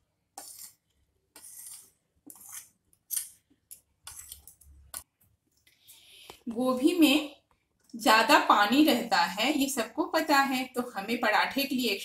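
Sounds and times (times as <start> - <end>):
spoon scraping a paper plate: 0.4 - 4.7.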